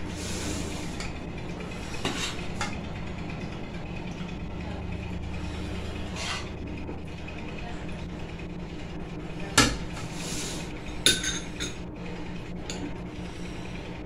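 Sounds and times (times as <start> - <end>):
low background hum: 0.0 - 14.0
spoon scraping rice onto a plate: 2.0 - 2.5, 6.1 - 6.6.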